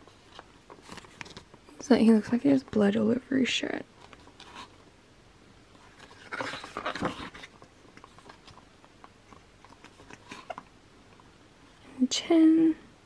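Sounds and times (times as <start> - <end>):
book pages rustling: 0.0 - 2.8, 3.9 - 4.9, 5.7 - 11.3.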